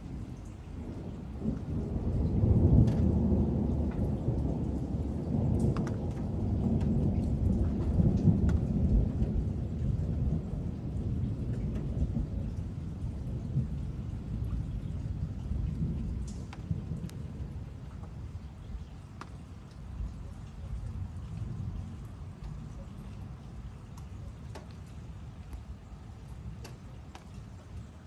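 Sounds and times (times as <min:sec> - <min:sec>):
thunder rolling: 0:00.8 - 0:18.4.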